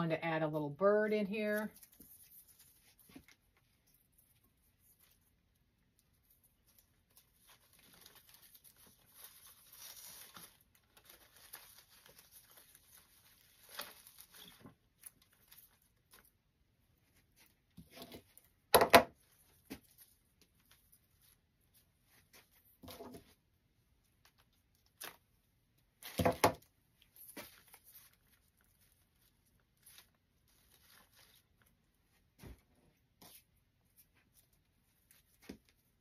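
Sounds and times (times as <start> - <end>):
dry stems rustling and crackling: 6.2 - 16.4, 27.0 - 31.8.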